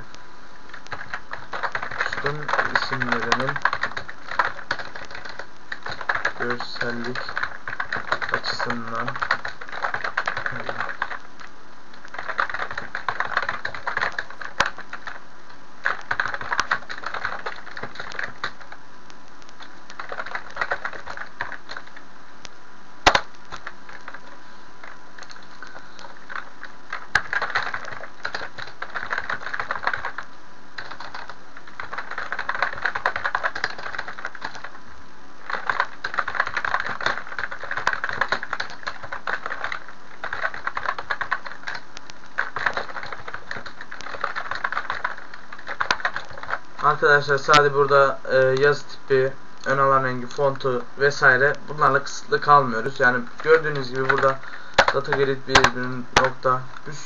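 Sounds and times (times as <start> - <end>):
keyboard typing clicks: 0.7 - 15.2, 15.8 - 18.7, 25.2 - 34.8, 35.5 - 46.6, 53.4 - 56.9.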